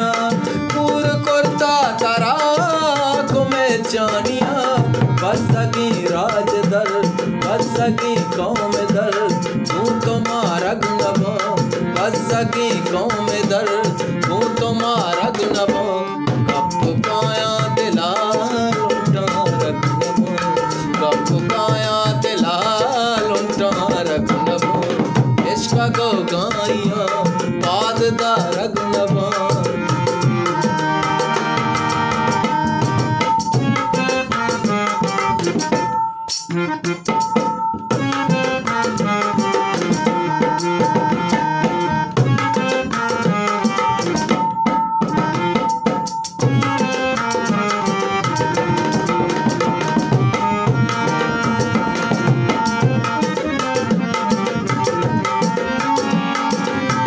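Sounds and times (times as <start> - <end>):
melodic instrument line: 0.0 - 57.0
tabla rhythm: 0.0 - 57.0.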